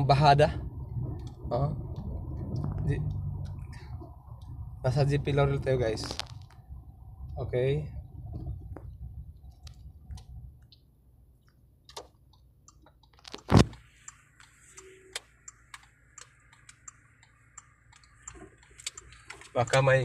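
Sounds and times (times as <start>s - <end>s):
engine and road hum: 0.0s - 20.0s.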